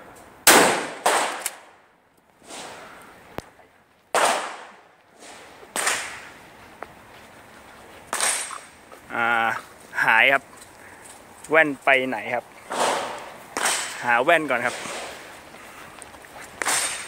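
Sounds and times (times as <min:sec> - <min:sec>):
shotgun blast: 0:00.4 - 0:01.7, 0:04.2 - 0:04.8, 0:12.7 - 0:14.0
sharp bangs and knocks: 0:04.1 - 0:06.2, 0:08.1 - 0:08.8, 0:12.7 - 0:15.2, 0:16.6 - 0:17.0.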